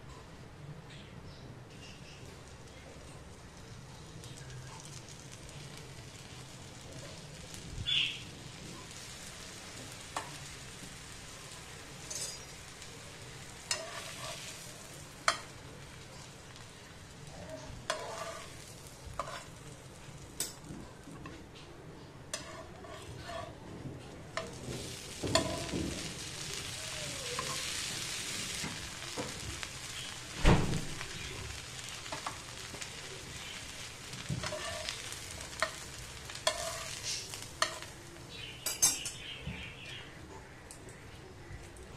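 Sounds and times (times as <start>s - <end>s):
bread sizzling on a pan: 1.7s - 40.2s
metal tongs tapping pan: 13.7s - 14.4s, 15.2s - 15.5s, 25.2s - 25.8s, 38.6s - 39.2s.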